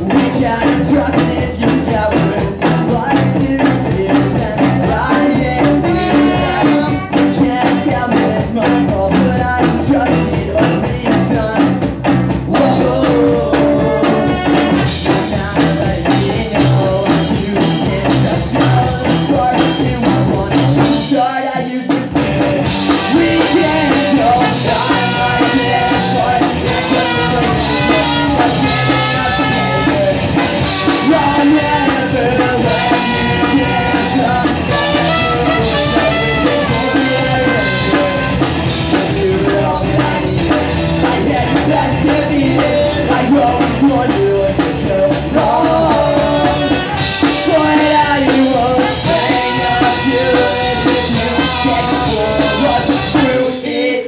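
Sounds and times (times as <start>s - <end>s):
drum kit: 0.0s - 53.8s
electric guitars: 0.0s - 53.8s
person singing: 0.0s - 54.0s
trumpet: 22.9s - 31.8s, 32.7s - 38.7s, 46.2s - 53.5s.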